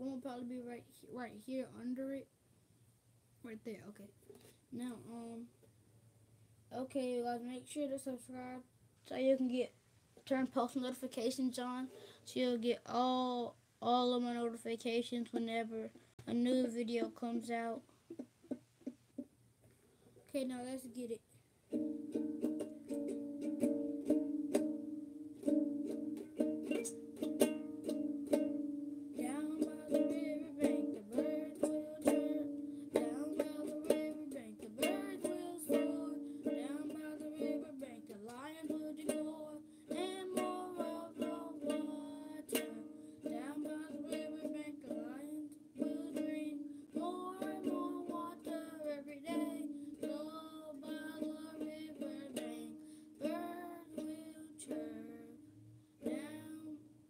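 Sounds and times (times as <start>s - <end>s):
young girl singing: 0.0s - 2.3s, 4.7s - 5.6s, 6.7s - 9.6s, 10.2s - 17.9s, 20.2s - 57.0s
ukulele strumming chords: 15.3s - 19.3s, 21.7s - 55.4s, 56.0s - 56.8s.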